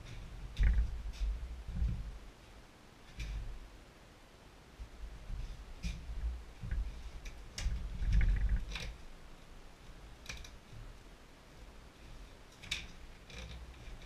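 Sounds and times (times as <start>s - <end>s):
sharp clicks and knocks: 0.1s - 2.0s.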